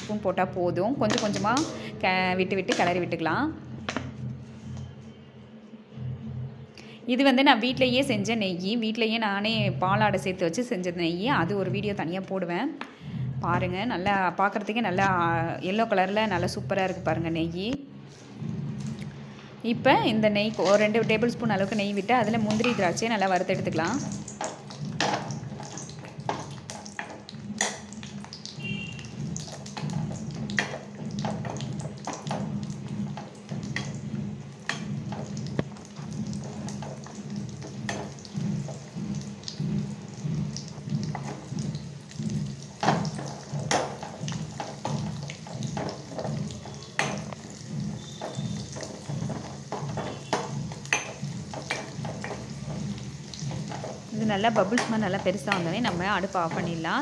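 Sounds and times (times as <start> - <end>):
nuts sizzling in ghee: 20.0 - 57.0.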